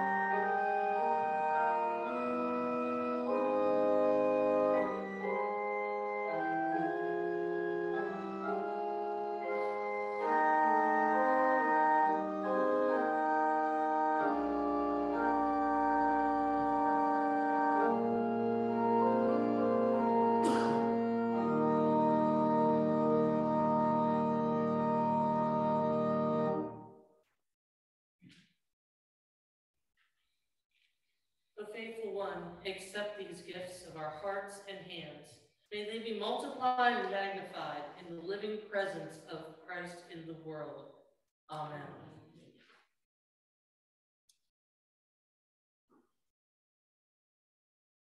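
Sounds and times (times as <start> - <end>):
church organ playing chords: 0.0 - 27.0.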